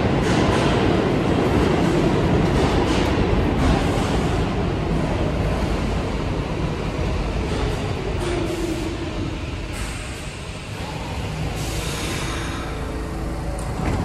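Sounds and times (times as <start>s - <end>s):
subway train deep rumble: 0.0s - 14.0s
air hiss: 11.5s - 12.8s.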